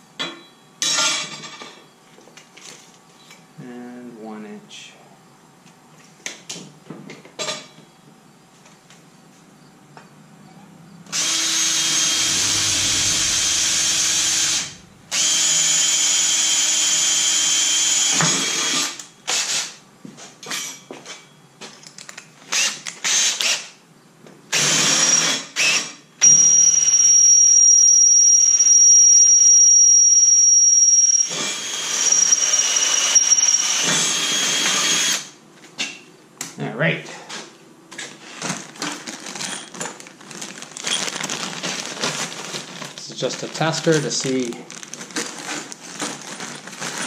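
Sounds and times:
cordless drill drilling into metal: 0:11.1 - 0:19.7, 0:22.5 - 0:23.7, 0:24.5 - 0:29.4, 0:30.0 - 0:35.3.

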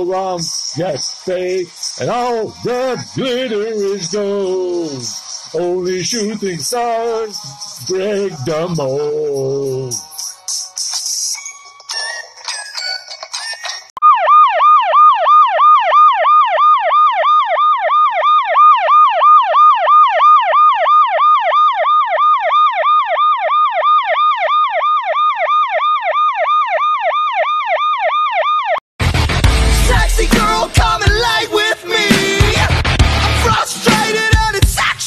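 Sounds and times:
electronic siren wailing: 0:00.0 - 0:10.1, 0:14.0 - 0:28.8
loud bass-heavy music: 0:00.0 - 0:10.1, 0:29.0 - 0:35.0.

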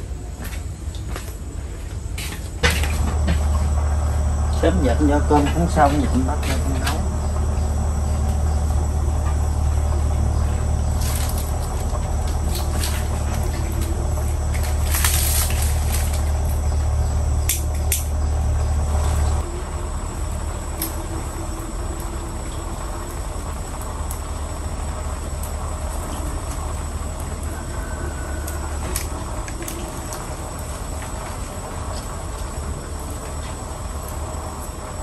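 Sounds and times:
gas stove rumble: 0:00.0 - 0:35.0.

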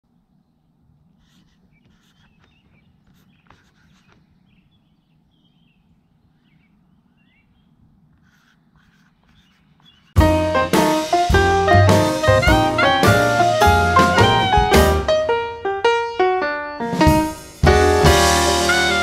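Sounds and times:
low outdoor hum: 0:00.0 - 0:10.2
faint bird chirps: 0:00.2 - 0:10.2
marker writing on a sign: 0:01.2 - 0:04.3, 0:08.1 - 0:10.2
loud jazz music: 0:10.2 - 0:19.0.

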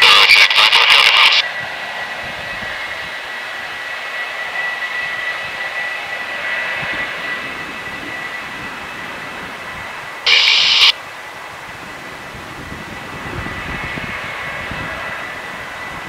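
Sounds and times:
jet engines whining: 0:00.0 - 0:16.0
loud burst of noise: 0:10.3 - 0:11.0.

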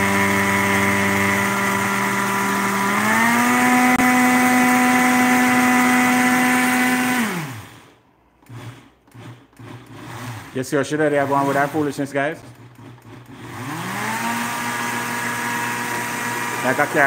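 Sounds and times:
blender motor grinding: 0:00.0 - 0:17.0.

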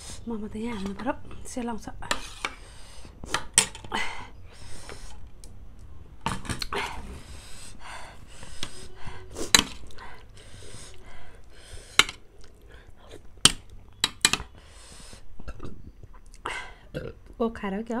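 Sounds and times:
chewing and mouth noises: 0:12.2 - 0:14.0, 0:15.4 - 0:17.4.

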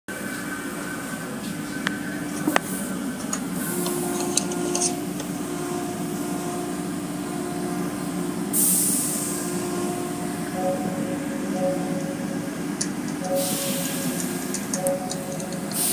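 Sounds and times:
car wash machinery humming: 0:00.1 - 0:15.9
loud hiss of spray: 0:08.6 - 0:09.4.

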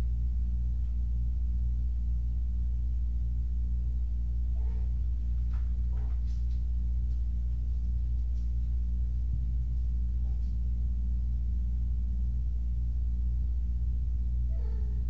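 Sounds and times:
low electrical hum: 0:00.0 - 0:15.0
kitten scuffling on rug: 0:05.3 - 0:08.8.

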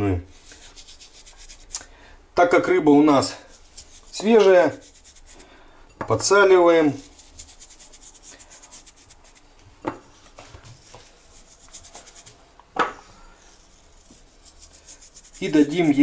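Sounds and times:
salt rubbed between fingers: 0:00.3 - 0:01.8, 0:03.2 - 0:05.5, 0:06.8 - 0:09.5, 0:10.8 - 0:12.4, 0:13.3 - 0:16.0.

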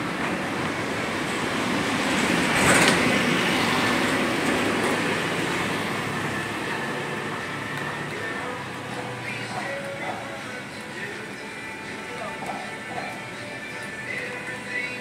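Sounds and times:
vehicle passing: 0:00.4 - 0:11.2.

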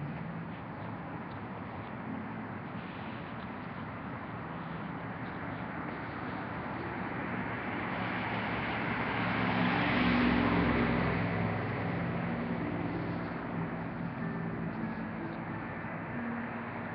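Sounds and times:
car driving past: 0:07.4 - 0:16.4.

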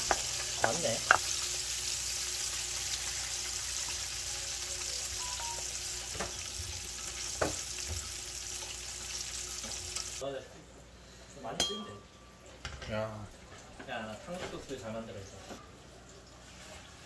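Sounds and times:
vegetables frying sizzle: 0:00.0 - 0:10.2.

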